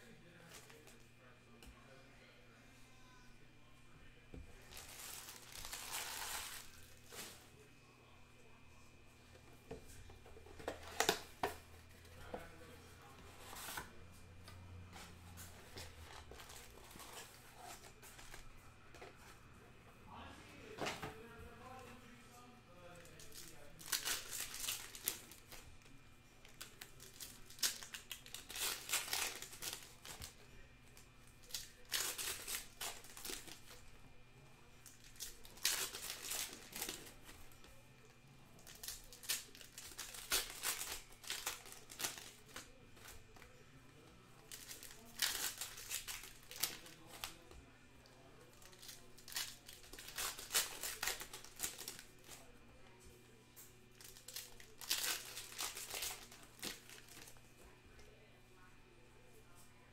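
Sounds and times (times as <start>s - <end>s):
foil packs crinkling and tearing: 4.6s - 7.4s, 15.6s - 18.4s, 23.0s - 25.6s, 26.4s - 30.4s, 31.4s - 33.8s, 34.9s - 37.3s, 38.6s - 43.5s, 44.4s - 47.5s, 48.6s - 52.5s, 53.9s - 57.4s.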